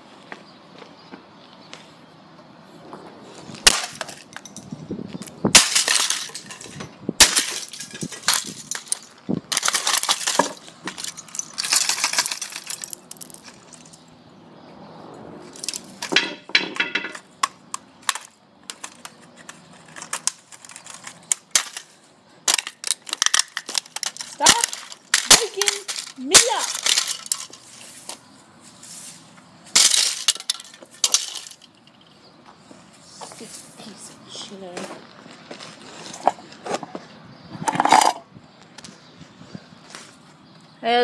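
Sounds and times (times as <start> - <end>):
plastic pieces clattering: 5.6 - 14.0, 15.6 - 27.8, 29.7 - 31.8
plastic case cracking and crunching: 7.2 - 13.3, 22.5 - 27.6.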